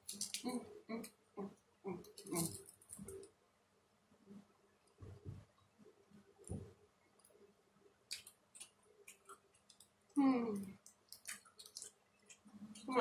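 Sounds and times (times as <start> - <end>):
shrimp shell crackling: 0.0 - 0.6, 8.1 - 13.0
soft thuds: 5.0 - 5.5.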